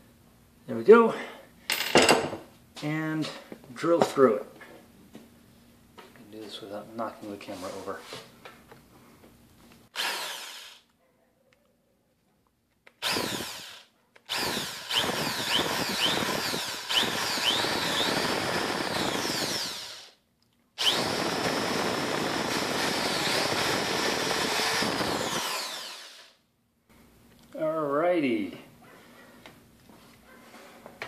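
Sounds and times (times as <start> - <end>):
drill bit squealing: 10.0 - 10.8, 13.0 - 20.1, 20.8 - 26.2
electric drill boring through metal: 10.0 - 10.8, 13.0 - 20.2, 20.8 - 26.4.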